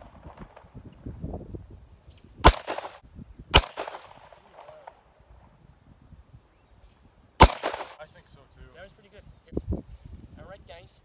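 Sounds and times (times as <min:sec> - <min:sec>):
rifle shots with echo: 0:02.4 - 0:05.0, 0:07.4 - 0:08.1.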